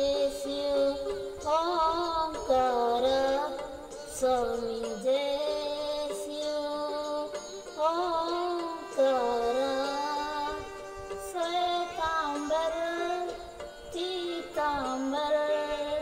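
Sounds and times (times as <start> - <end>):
devotional music: 0.0 - 16.0.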